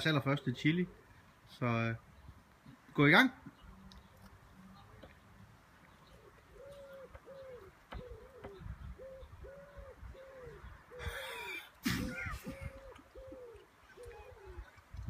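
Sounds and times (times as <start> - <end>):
pigeon cooing: 6.1 - 14.8
boy laughing: 11.0 - 13.5.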